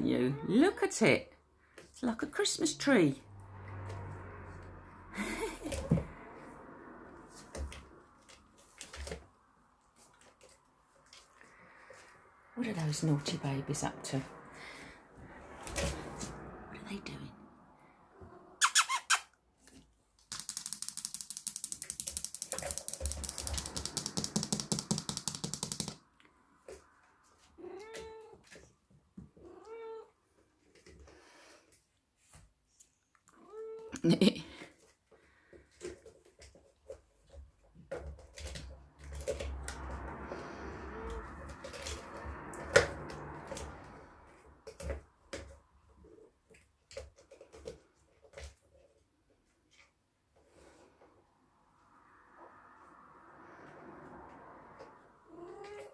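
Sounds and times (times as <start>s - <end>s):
plastic balls rolling and clicking: 20.2s - 26.1s.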